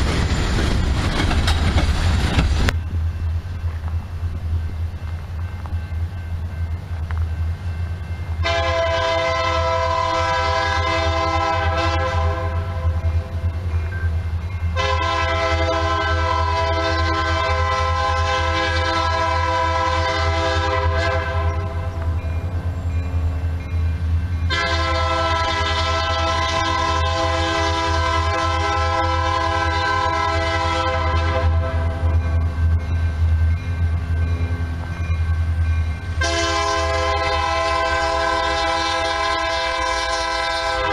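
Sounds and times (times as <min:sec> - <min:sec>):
train rumbling: 0:00.0 - 0:40.9
train air horn blasts: 0:08.4 - 0:13.3, 0:14.7 - 0:22.0, 0:24.5 - 0:32.4, 0:36.2 - 0:40.9.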